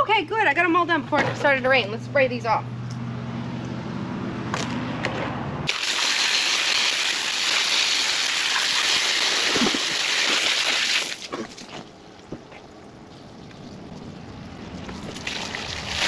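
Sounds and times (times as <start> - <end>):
hose spraying water: 5.7 - 11.8.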